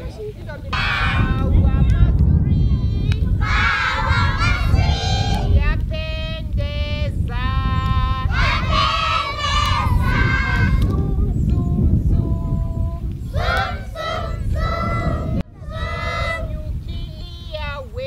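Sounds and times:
children singing together: 0:03.4 - 0:05.6, 0:08.3 - 0:11.0, 0:13.3 - 0:17.0
single high voice singing: 0:07.4 - 0:17.5.

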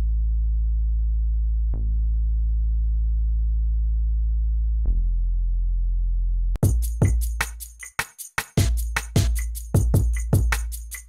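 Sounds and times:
synth sub-bass notes: 0:00.0 - 0:06.9.

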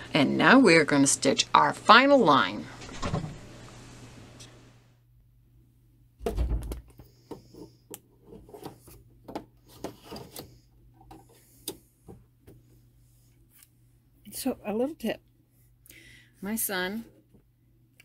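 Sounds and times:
heavy thud: 0:06.2 - 0:06.9.

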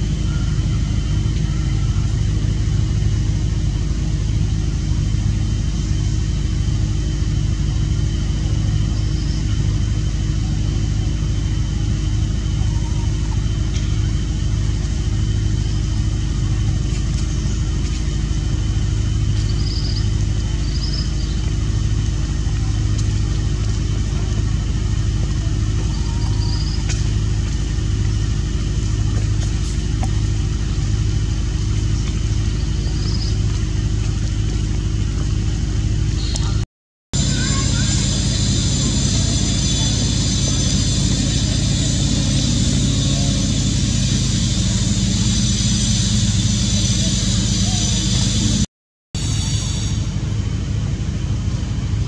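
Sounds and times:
low engine-like drone: 0:00.0 - 0:52.0
faint constant whine: 0:37.2 - 0:48.6.

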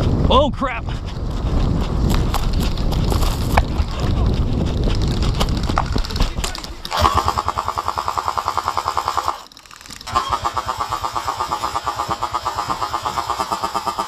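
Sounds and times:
airsoft gun firing full-auto: 0:06.6 - 0:14.0.

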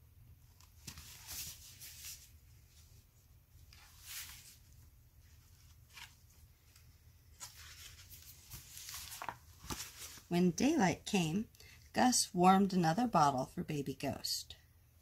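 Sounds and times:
low room hum: 0:00.0 - 0:15.0
book pages turning: 0:00.5 - 0:03.0, 0:03.6 - 0:10.3.

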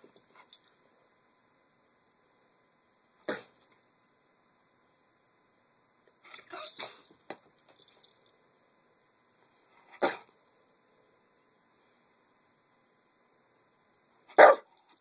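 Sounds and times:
dog yipping and barking: 0:14.4 - 0:14.7.

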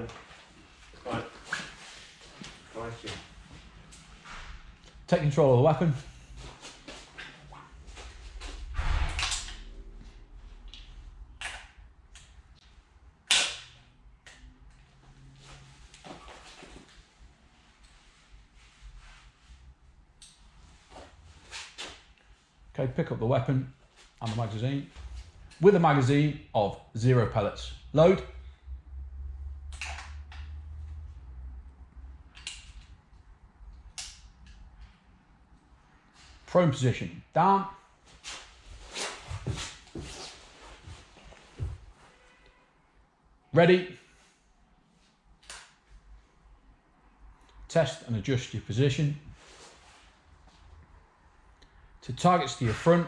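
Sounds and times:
loud sharp snap: 0:08.8 - 0:09.7, 0:13.2 - 0:14.4.

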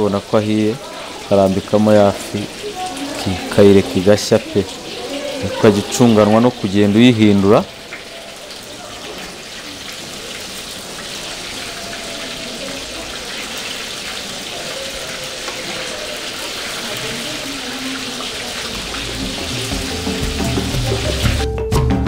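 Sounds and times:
fish frying in hot oil: 0:00.0 - 0:21.5
background music: 0:18.8 - 0:22.0.

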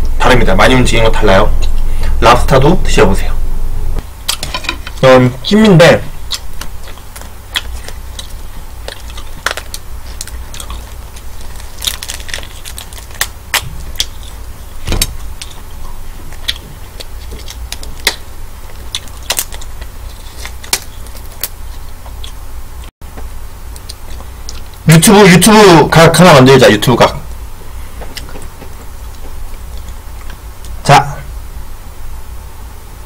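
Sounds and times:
prawn shells cracking: 0:06.3 - 0:22.4.

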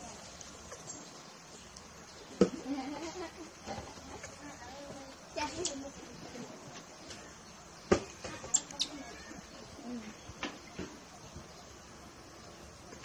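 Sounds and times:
baby monkey squeaking: 0:08.4 - 0:09.5.

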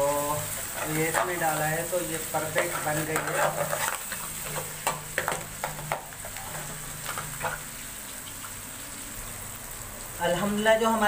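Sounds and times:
frying sizzle: 0:00.0 - 0:11.0
metal spoon scraping a pan: 0:00.1 - 0:07.8.

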